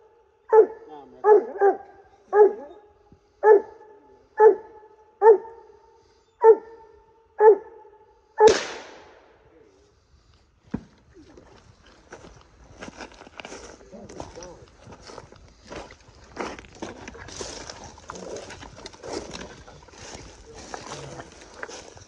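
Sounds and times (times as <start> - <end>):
dog barking: 0.5 - 5.8, 6.4 - 8.0.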